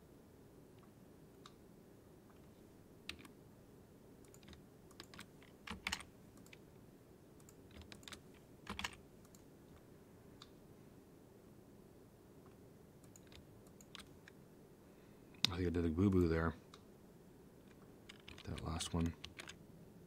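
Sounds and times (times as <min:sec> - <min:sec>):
keyboard keystrokes: 0:04.2 - 0:06.6, 0:07.4 - 0:09.4, 0:18.1 - 0:19.6.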